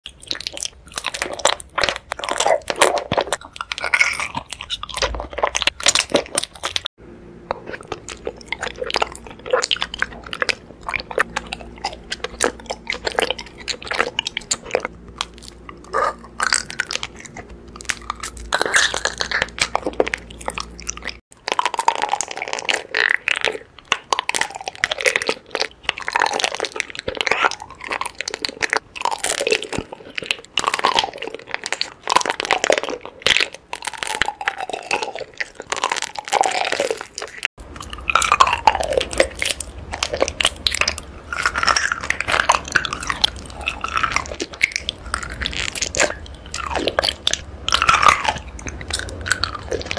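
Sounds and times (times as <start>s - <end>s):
chewing honeycomb crunching: 0.1s - 49.9s
faint low hum: 0.1s - 49.9s.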